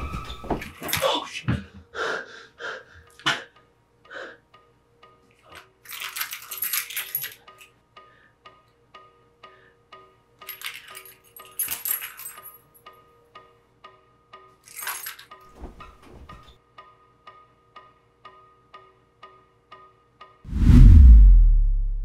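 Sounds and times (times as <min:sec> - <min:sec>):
metal keys jingling: 0:05.5 - 0:07.5, 0:10.5 - 0:12.6, 0:14.6 - 0:15.6.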